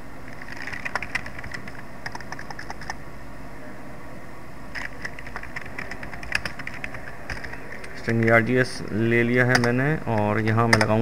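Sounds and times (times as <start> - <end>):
computer keyboard typing: 0.4 - 3.0, 4.7 - 8.4, 9.4 - 11.0.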